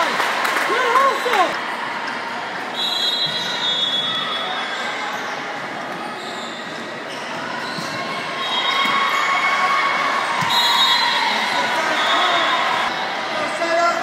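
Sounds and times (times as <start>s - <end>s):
crowd chatter: 0.0s - 14.0s
sneaker squeaks on hardwood floor: 2.8s - 9.2s.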